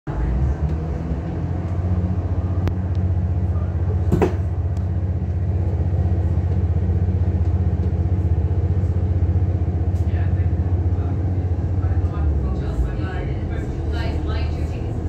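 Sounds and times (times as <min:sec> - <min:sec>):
train diesel engine humming: 0:00.1 - 0:15.0
short knock: 0:04.1 - 0:04.5.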